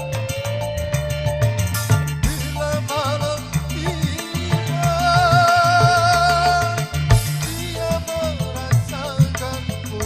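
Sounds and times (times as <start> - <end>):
bass line: 0.0 - 10.0
hand drum beat: 0.0 - 10.0.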